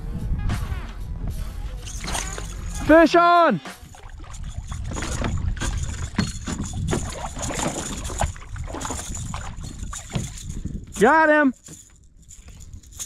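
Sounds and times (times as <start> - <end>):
water sloshing: 1.8 - 13.0
fish thrashing and splashing: 1.9 - 2.9, 3.8 - 10.9.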